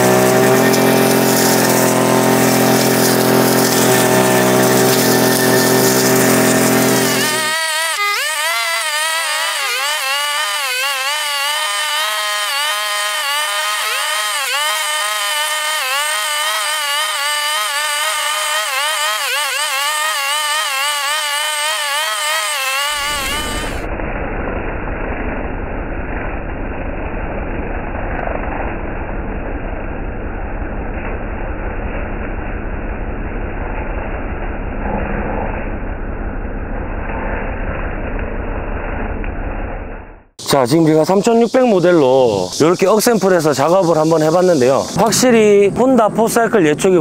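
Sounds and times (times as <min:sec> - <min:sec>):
brush cutter engine running: 0:00.0 - 0:23.9, 0:40.4 - 0:46.9
low rumble: 0:23.6 - 0:40.3.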